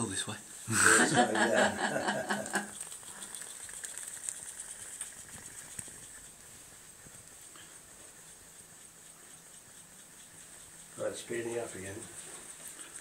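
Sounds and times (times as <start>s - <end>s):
stirling engine fast light ticking: 7.4s - 13.0s.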